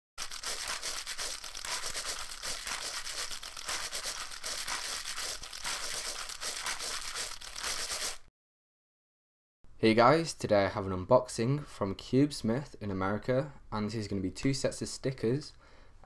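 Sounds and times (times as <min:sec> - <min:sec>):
dense crackling and rustling: 0:00.2 - 0:08.3.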